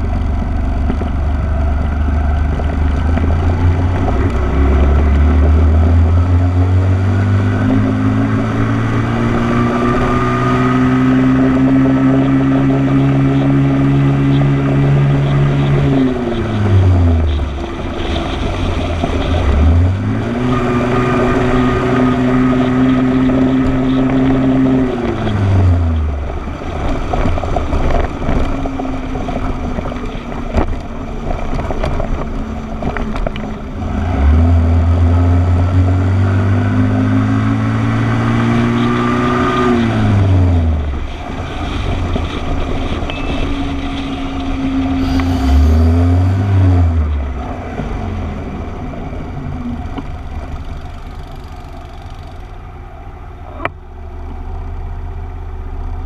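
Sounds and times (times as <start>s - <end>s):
motorcycle engine running: 0.0s - 10.1s, 40.0s - 56.0s
wind buffeting microphone: 0.0s - 33.8s.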